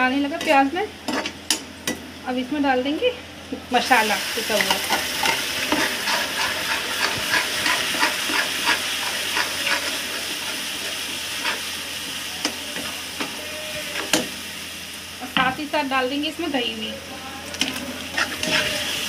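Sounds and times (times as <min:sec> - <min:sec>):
paste sizzling in hot oil: 0:03.8 - 0:15.3, 0:17.5 - 0:19.0
metal spatula scraping pan: 0:04.6 - 0:11.7, 0:17.6 - 0:19.0.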